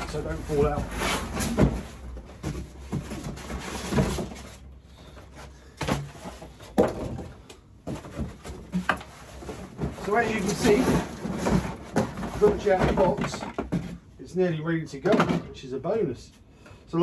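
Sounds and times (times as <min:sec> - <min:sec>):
knocks and thumps: 0:00.0 - 0:04.5, 0:05.8 - 0:14.1
cardboard and polystyrene rustling: 0:00.0 - 0:06.7, 0:07.9 - 0:14.0.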